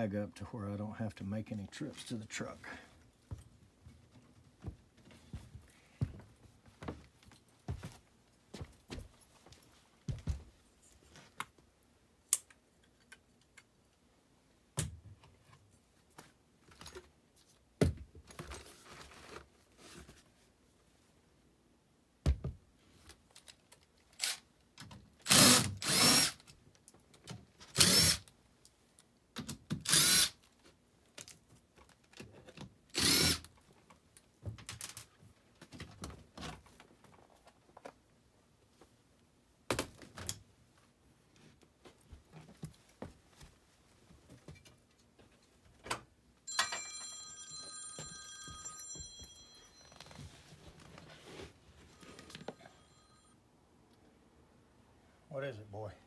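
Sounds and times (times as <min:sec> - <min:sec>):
cordless drill running: 0:25.3 - 0:26.4, 0:27.8 - 0:28.2, 0:29.9 - 0:30.3, 0:33.0 - 0:33.4.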